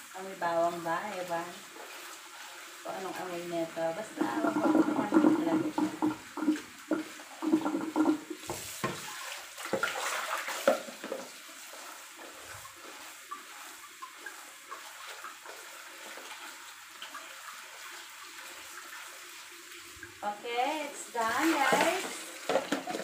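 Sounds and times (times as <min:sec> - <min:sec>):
tap water splashing into colander: 0:04.0 - 0:20.2, 0:21.2 - 0:23.0.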